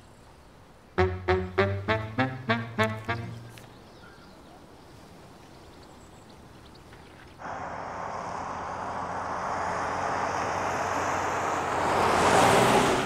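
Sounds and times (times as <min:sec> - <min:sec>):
car driving fast: 0:07.4 - 0:13.0.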